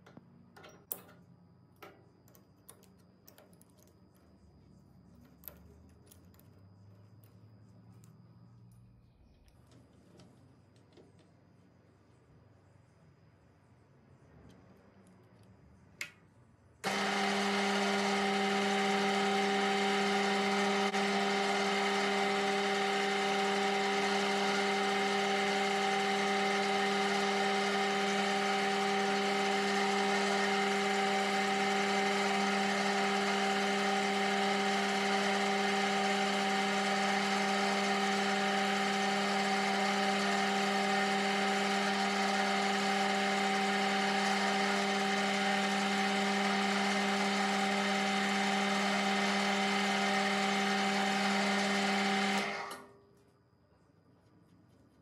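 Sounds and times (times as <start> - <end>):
metal lathe motor humming and whining: 16.8 - 52.9.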